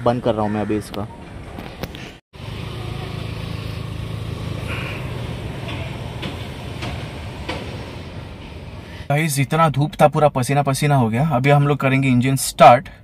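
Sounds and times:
vehicle engine hum: 0:01.2 - 0:09.1.

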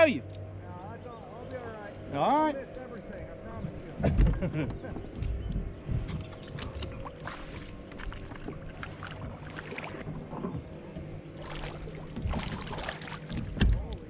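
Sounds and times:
fish splashing and thrashing: 0:06.0 - 0:14.0.

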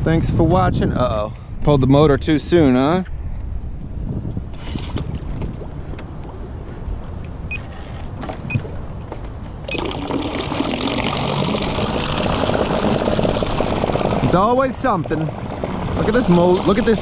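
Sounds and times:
low wind rumble: 0:00.0 - 0:17.0
propeller churning water: 0:04.2 - 0:17.0
electric motor running: 0:11.0 - 0:17.0.

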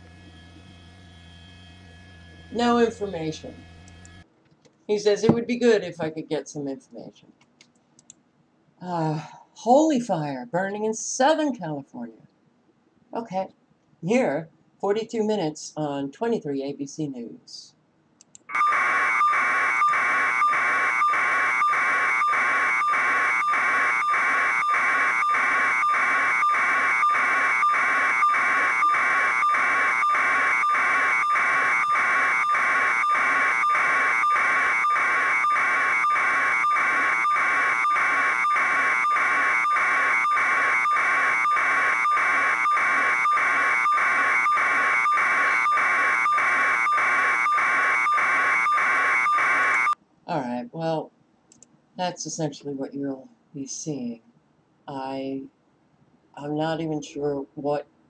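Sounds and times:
harsh pulsing buzz with tone: 0:00.0 - 0:04.2, 0:18.8 - 0:49.8.

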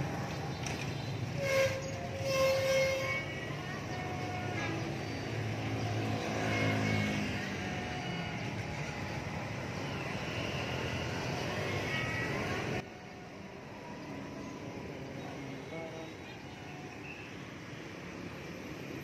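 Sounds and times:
motorbike engines passing: 0:03.6 - 0:12.8.

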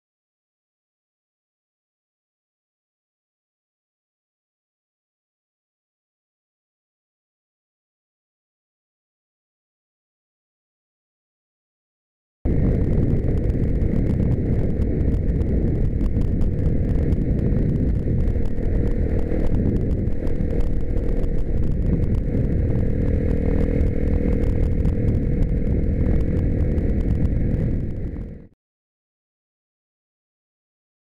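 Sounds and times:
motorcycle engine running: 0:12.5 - 0:28.5
wind buffeting on microphone: 0:12.5 - 0:28.5.

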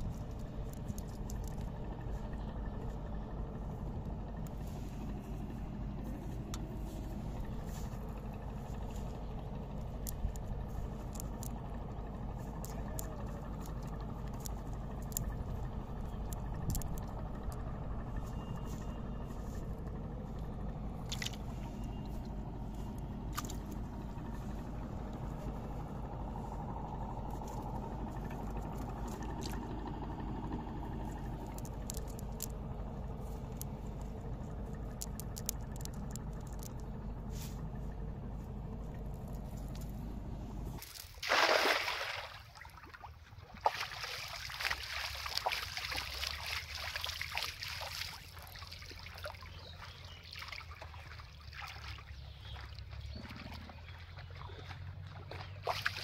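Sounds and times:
net clicks and rustles: 0:00.0 - 0:02.2, 0:08.8 - 0:11.6, 0:12.3 - 0:17.6, 0:31.1 - 0:37.6, 0:38.9 - 0:40.0
steady low rumble: 0:00.0 - 0:56.0
water sloshing and trickling: 0:00.0 - 0:56.0
loud splash: 0:40.9 - 0:43.0.

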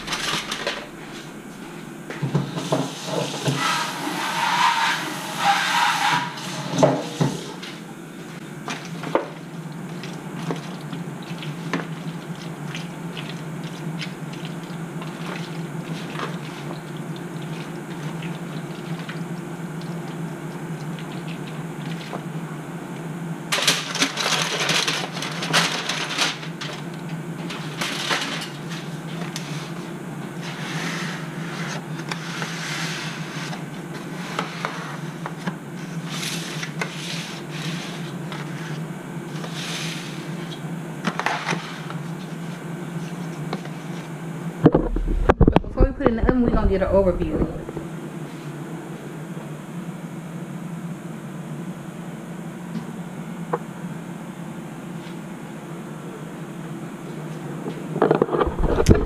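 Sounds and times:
foil pan crinkling: 0:00.0 - 0:01.3, 0:23.6 - 0:29.4
low hum: 0:00.0 - 0:02.2, 0:44.6 - 0:48.2.

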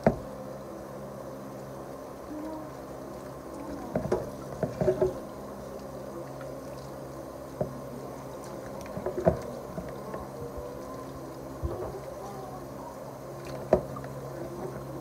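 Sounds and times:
water splashing: 0:02.3 - 0:15.0
tap water running: 0:03.1 - 0:05.5.

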